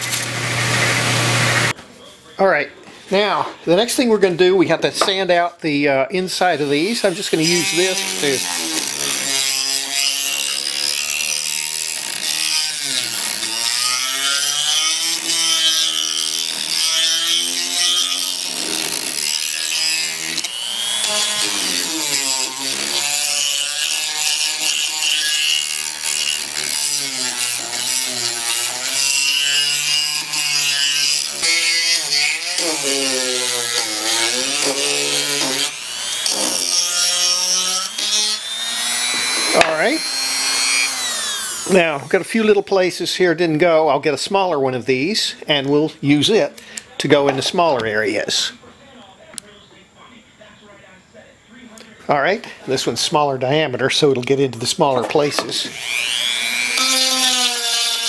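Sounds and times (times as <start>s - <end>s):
power tool motor hum: 16.0s - 41.7s, 55.4s - 58.0s.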